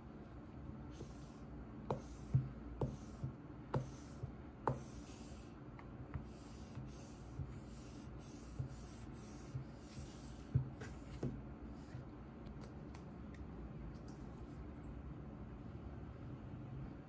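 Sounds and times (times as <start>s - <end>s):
pad rubbing on glass screen: 6.2s - 12.0s.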